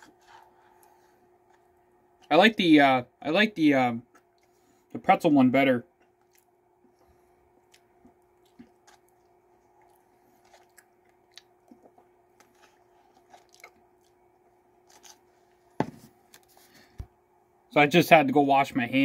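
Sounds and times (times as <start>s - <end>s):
faint chewing: 0.0s - 2.3s, 4.0s - 4.9s, 5.9s - 17.1s
faint hum: 0.0s - 19.0s.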